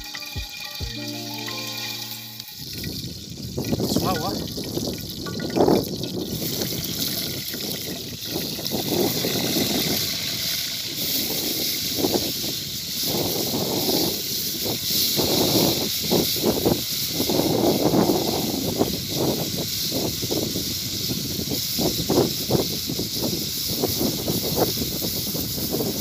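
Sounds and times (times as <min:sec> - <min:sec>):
fish sizzling in hot oil: 0:00.0 - 0:26.0.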